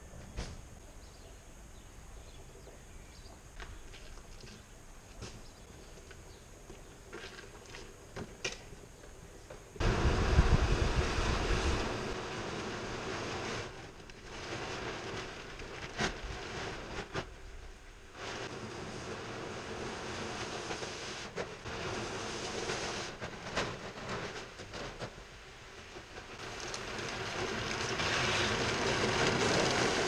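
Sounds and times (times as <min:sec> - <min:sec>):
low rumble: 0:09.8 - 0:12.4
plastic sheet rustling and dragging: 0:09.8 - 0:30.0.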